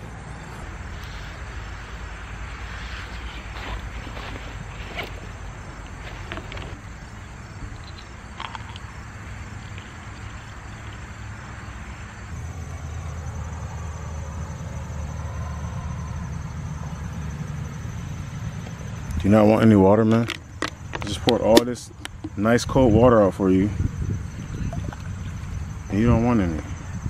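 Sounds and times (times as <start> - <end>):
insect trill: 0.0 - 27.0
backpack clicks and rustles: 2.8 - 7.0.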